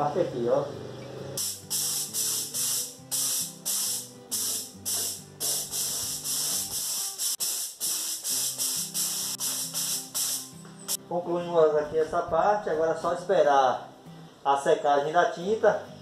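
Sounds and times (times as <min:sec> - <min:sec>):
background music: 0:00.0 - 0:16.0
spray gun hissing bursts: 0:01.4 - 0:10.6.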